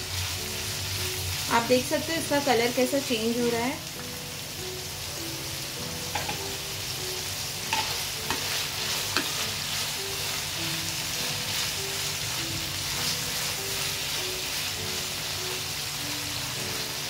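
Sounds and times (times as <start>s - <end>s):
meat sizzling in a frying pan: 0.0s - 17.0s
spatula knocking against pan: 6.1s - 6.4s, 7.7s - 8.4s.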